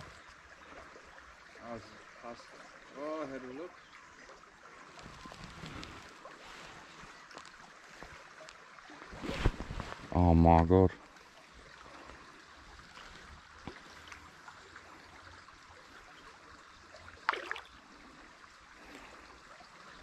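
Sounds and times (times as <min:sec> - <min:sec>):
gravel stream trickling: 0:00.0 - 0:20.0.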